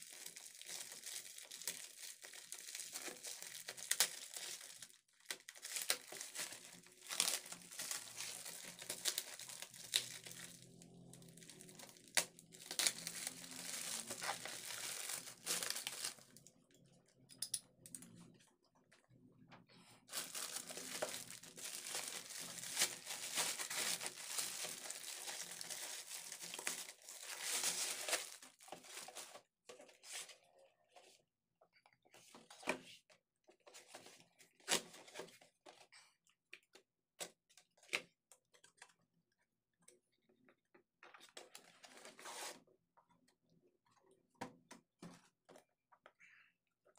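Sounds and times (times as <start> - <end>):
plastic and bubble wrap crinkling: 0.0 - 16.5, 20.0 - 29.5.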